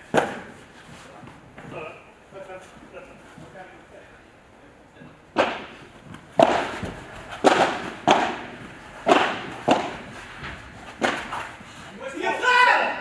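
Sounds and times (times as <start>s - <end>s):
padel ball pops echoing: 6.4s - 10.1s.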